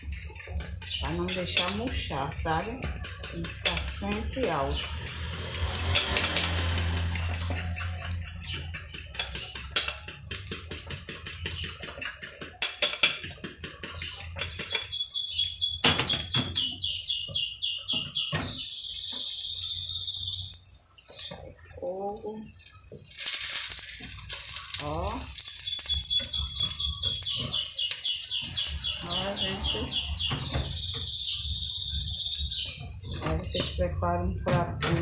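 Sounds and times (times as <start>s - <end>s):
fork beating eggs in bowl: 0.0s - 15.0s, 23.0s - 30.9s.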